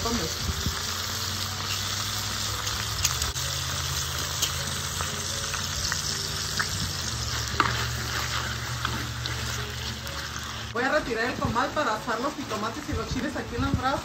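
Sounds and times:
beef sizzling in hot oil: 0.0s - 14.0s
oil popping: 1.4s - 10.8s.

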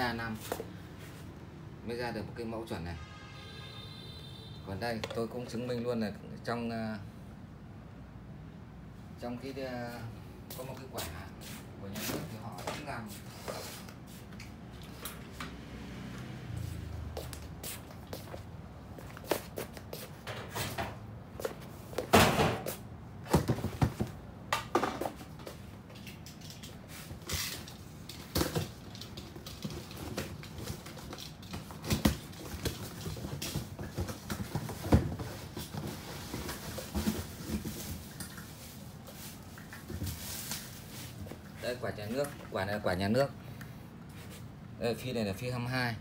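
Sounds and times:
objects knocking and clunking: 4.9s - 5.4s, 20.2s - 38.7s.

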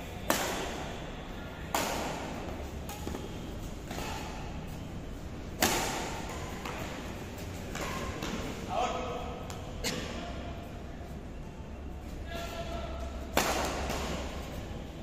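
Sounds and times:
rackets hitting shuttlecock: 0.1s - 1.0s, 1.6s - 4.8s, 5.4s - 8.7s, 13.0s - 14.8s.

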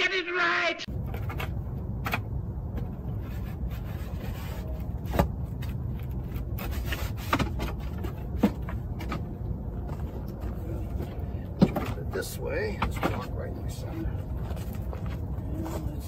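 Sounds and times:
wooden panels scraping and knocking: 1.1s - 12.1s.

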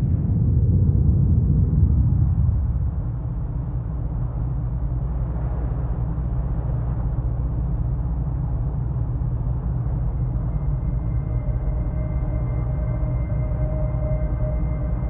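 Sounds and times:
deep rumble: 0.0s - 15.0s
faint low hum: 0.0s - 15.0s.

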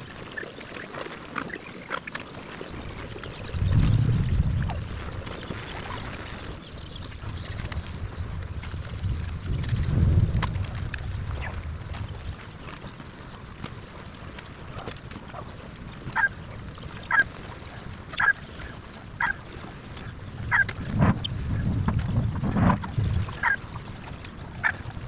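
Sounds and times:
insects droning: 0.0s - 25.0s
wind on microphone: 2.6s - 25.0s
bird calling: 18.1s - 19.4s, 22.7s - 24.9s.

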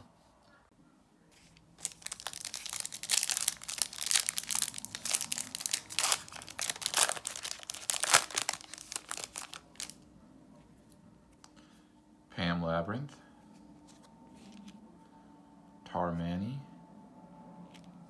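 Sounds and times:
foil wrapper crinkling: 1.8s - 10.0s.

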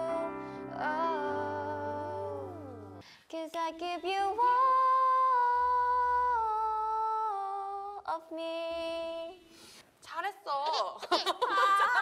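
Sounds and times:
woman singing unaccompanied: 0.0s - 9.5s.

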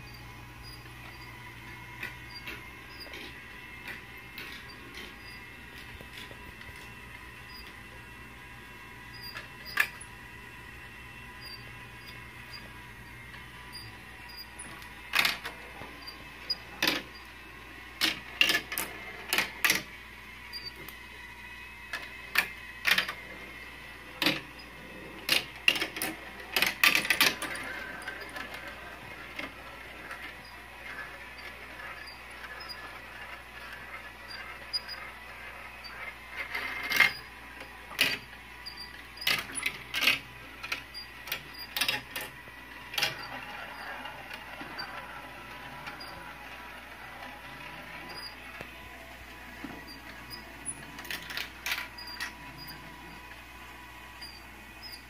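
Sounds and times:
faint steady whine: 0.0s - 55.0s
marbles clattering through plastic tracks: 24.1s - 24.5s, 25.2s - 34.0s.

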